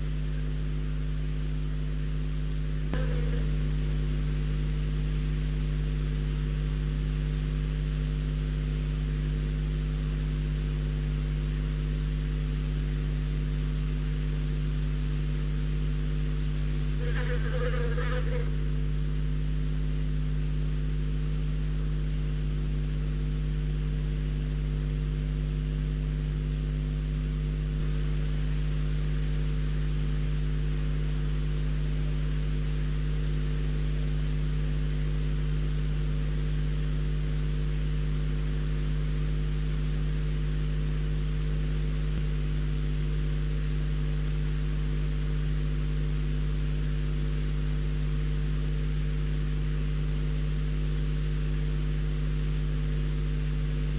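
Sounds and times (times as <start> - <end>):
low electrical hum: 0.0 - 53.9
faint high-pitched whine: 2.9 - 4.4, 16.8 - 18.7
constant hiss: 17.0 - 18.7.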